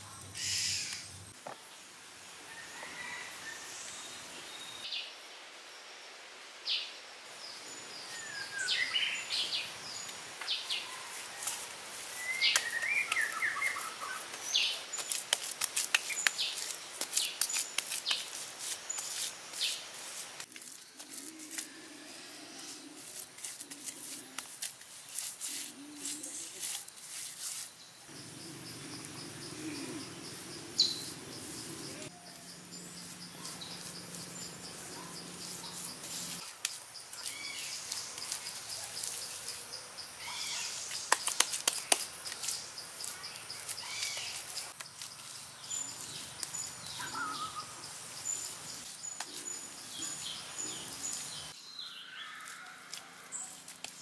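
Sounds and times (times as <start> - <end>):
birds chirping: 27.8 - 36.4, 42.2 - 52.5.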